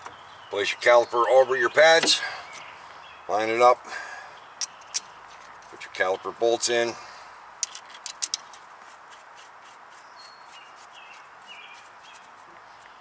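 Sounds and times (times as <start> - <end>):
faint bird chirps: 9.9 - 13.0.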